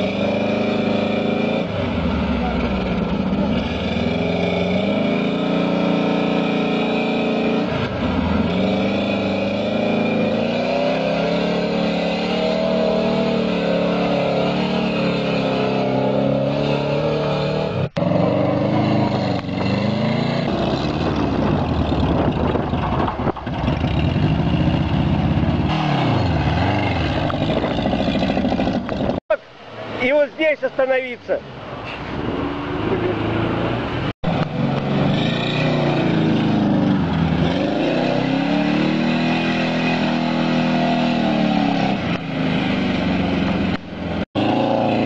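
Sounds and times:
car engine revving hard: 0.0 - 21.5, 25.6 - 28.9, 33.1 - 45.0.

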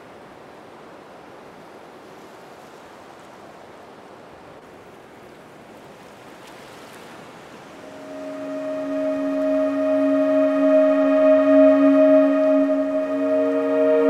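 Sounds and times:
ocean surf breaking: 6.6 - 14.0.

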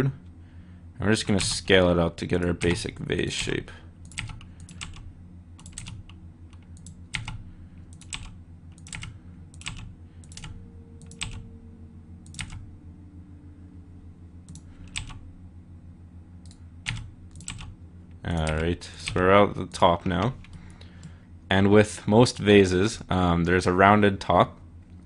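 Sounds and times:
steady low hum: 0.0 - 25.0
keyboard and mouse clicking: 3.4 - 5.0, 5.6 - 11.4, 12.3 - 12.6, 16.4 - 17.7.

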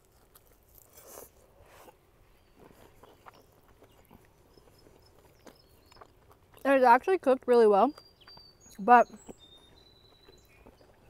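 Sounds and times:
person chewing: 0.0 - 6.6.

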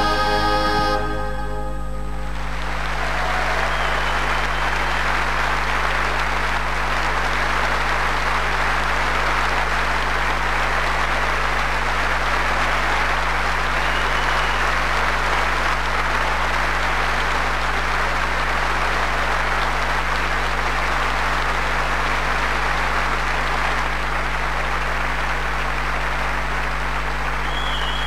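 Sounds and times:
audience applauding: 2.2 - 28.0.

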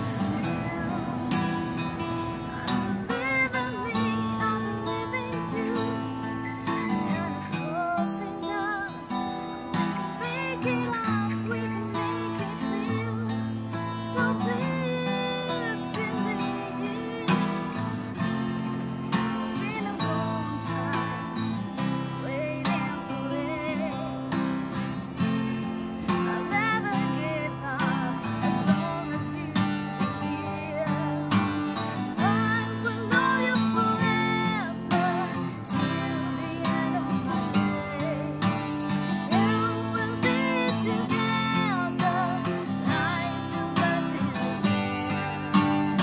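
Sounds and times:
acoustic guitar strumming: 0.0 - 46.0
woman singing: 0.0 - 46.0.

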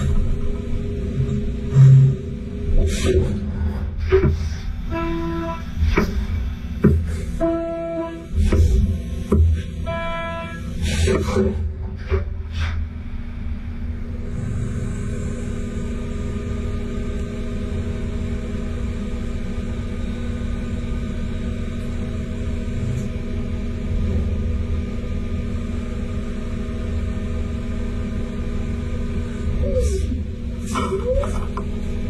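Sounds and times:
machine hum with held tones: 0.0 - 32.0.

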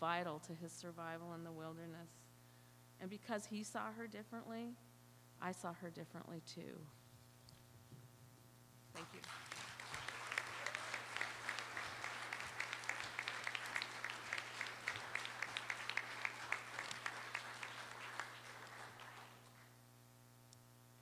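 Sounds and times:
audience applauding: 9.0 - 19.8.

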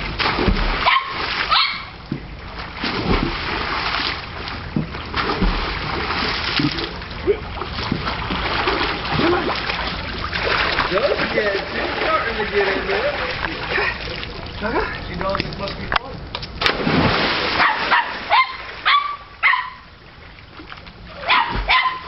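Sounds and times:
big water splash: 0.0 - 2.0, 2.6 - 7.0, 16.6 - 18.9
water splashing and sloshing: 0.0 - 22.0.

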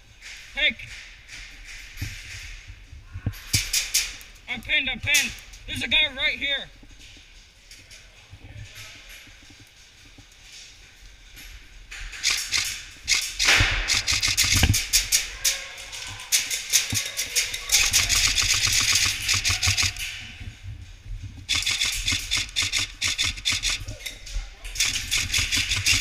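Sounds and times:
airsoft guns firing full-auto: 12.2 - 15.3, 16.5 - 20.1, 21.5 - 23.9, 24.8 - 26.0.

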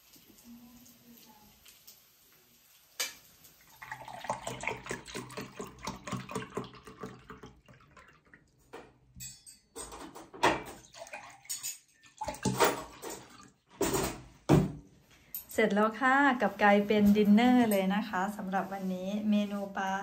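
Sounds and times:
juice glugging into a glass: 3.7 - 8.5
drink pouring from plastic bottle: 3.8 - 8.4.

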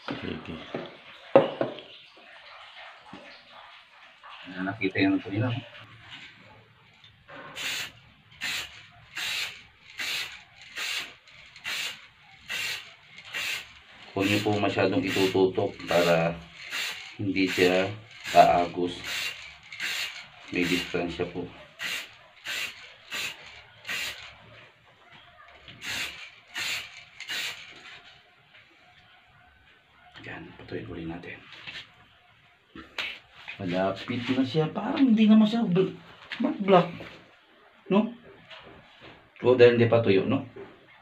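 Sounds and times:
spray paint can hissing: 7.5 - 24.4, 25.7 - 27.9.

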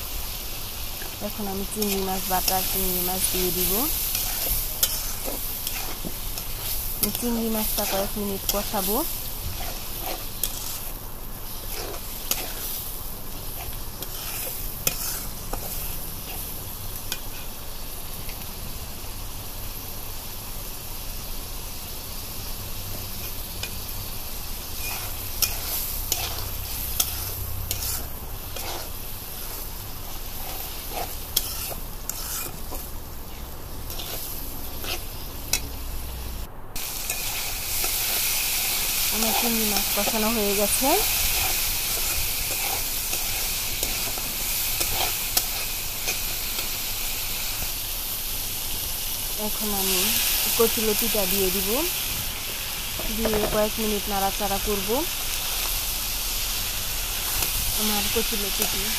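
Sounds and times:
shrimp sizzling in oil: 0.0 - 58.9
metal spatula scraping a pan: 1.8 - 10.9, 11.5 - 12.8, 13.5 - 16.5, 24.8 - 35.6, 39.2 - 46.7.

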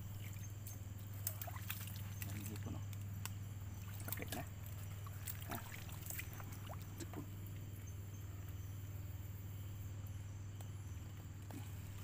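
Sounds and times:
steady low hum: 0.0 - 12.0
squelching footsteps in mud: 1.2 - 7.2.

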